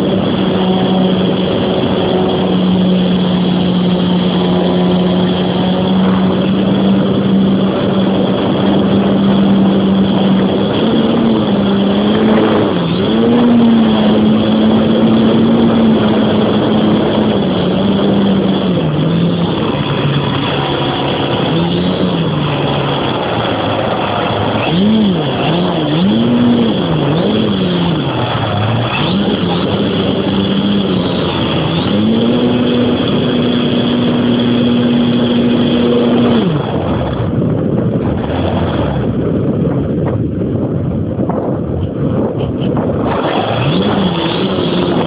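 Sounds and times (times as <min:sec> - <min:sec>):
electric motor whine: 0:00.0 - 0:39.2, 0:43.0 - 0:45.0
wind rush on microphone: 0:00.0 - 0:45.0.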